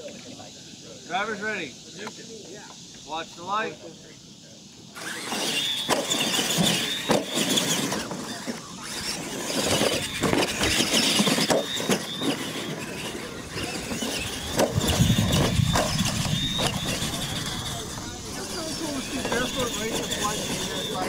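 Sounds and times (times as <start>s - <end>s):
high-pitched motor whine: 0.3s - 21.0s
toy trucks knocking and rattling: 5.0s - 21.0s.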